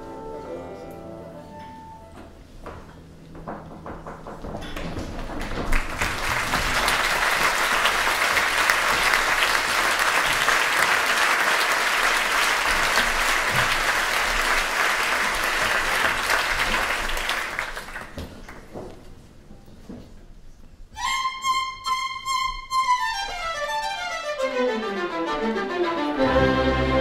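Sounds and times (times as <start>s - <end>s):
audience applauding: 5.4s - 18.7s.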